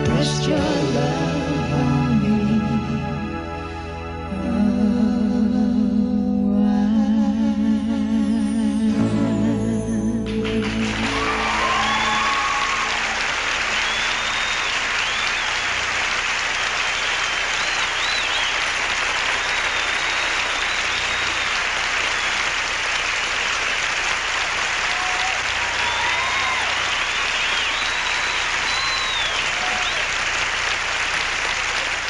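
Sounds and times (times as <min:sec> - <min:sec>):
crowd applause: 0:10.4 - 0:32.0
short whistles: 0:13.7 - 0:15.6, 0:16.9 - 0:18.7, 0:19.4 - 0:22.5, 0:27.2 - 0:30.1.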